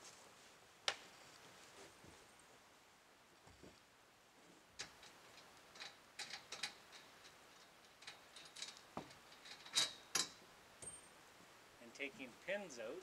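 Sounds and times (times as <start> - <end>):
metal pins clicking and clinking: 4.8 - 11.1.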